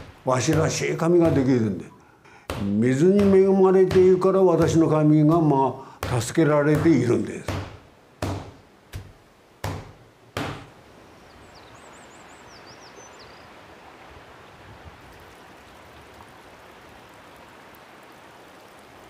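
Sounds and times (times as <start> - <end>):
sharp knocks: 0.0 - 1.7, 2.5 - 10.7
steady outdoor hiss: 0.0 - 19.0
small bird chirping: 11.1 - 13.6.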